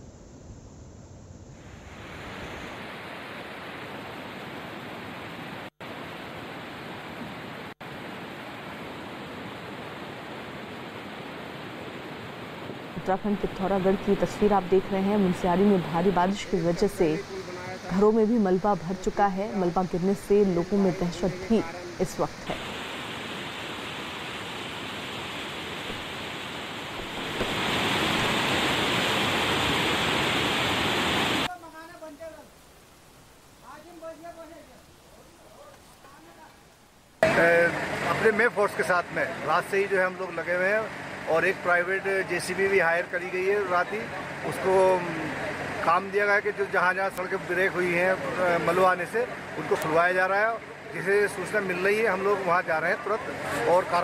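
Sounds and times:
stream water rushing: 1.7 - 36.0.

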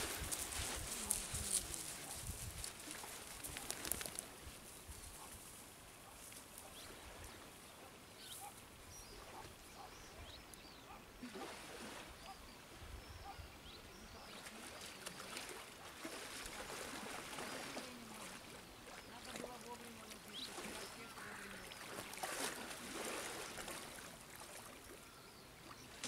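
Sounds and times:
sea water splashing and lapping: 0.0 - 4.4, 11.2 - 12.4, 14.3 - 26.0.

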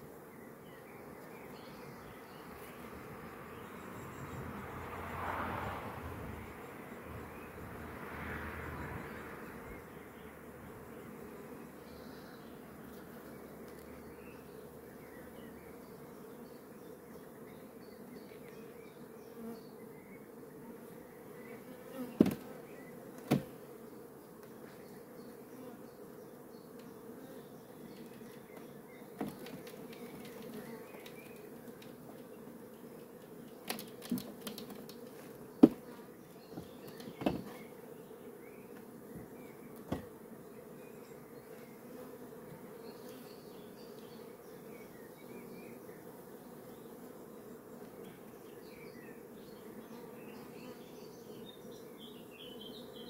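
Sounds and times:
honeybees buzzing: 0.0 - 53.0
wooden knocks and clicks: 36.6 - 37.5.

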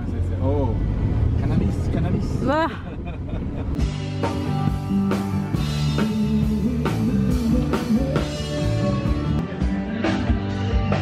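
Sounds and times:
drum kit beat: 3.8 - 11.0
guitar: 3.8 - 11.0
rock band playing: 3.8 - 11.0.

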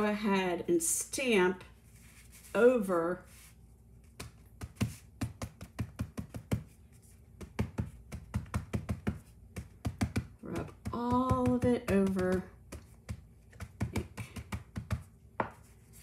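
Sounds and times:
ink pad tapping on card: 4.2 - 6.7, 7.4 - 15.6.

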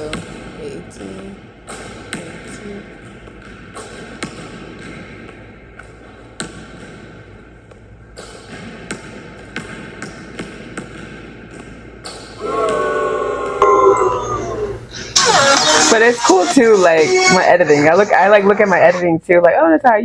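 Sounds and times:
basketball bouncing on hardwood: 1.6 - 7.2, 8.2 - 12.3
loud pitched sound: 12.4 - 16.3.

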